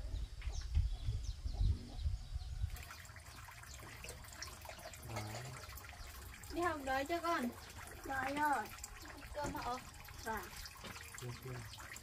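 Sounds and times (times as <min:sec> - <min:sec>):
water running and splashing: 0:02.7 - 0:12.0.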